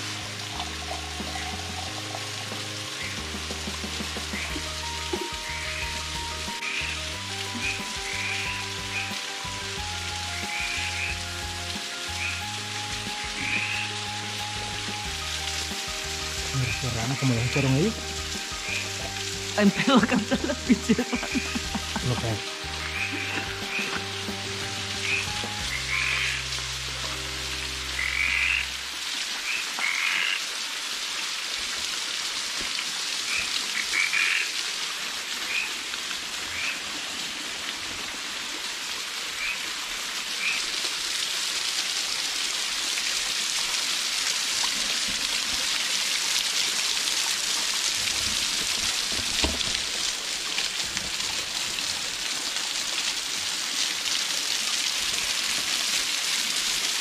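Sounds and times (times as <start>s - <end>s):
waterfall splashing onto rocks: 0.0s - 57.0s
frog croaks: 7.6s - 9.1s, 12.1s - 12.5s, 13.4s - 14.0s, 21.1s - 24.2s, 25.0s - 26.4s, 28.0s - 28.8s, 29.4s - 30.4s, 33.3s - 34.5s.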